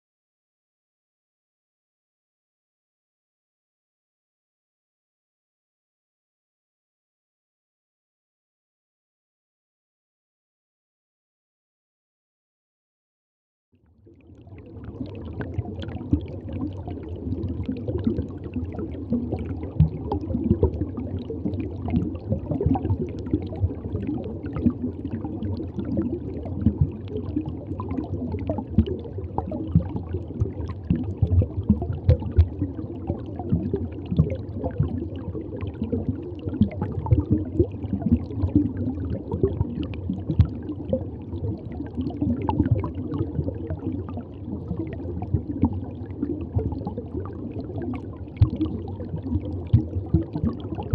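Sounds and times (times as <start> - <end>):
aquarium water gurgling: 14.0 - 50.9
small pops and bubbles: 14.3 - 50.9.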